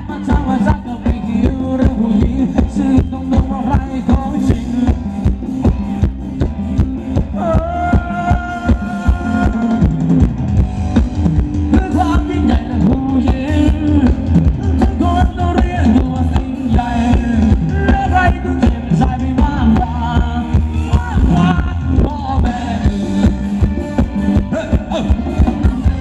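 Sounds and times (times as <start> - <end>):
drum kit beat: 0.0 - 26.0
live band dance music: 0.0 - 26.0
person singing melody: 7.1 - 10.2.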